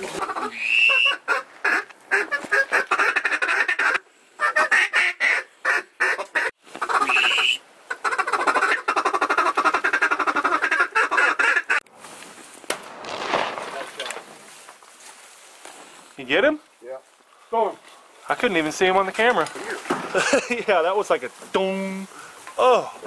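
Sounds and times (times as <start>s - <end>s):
duck call quacking: 0.1s - 11.8s.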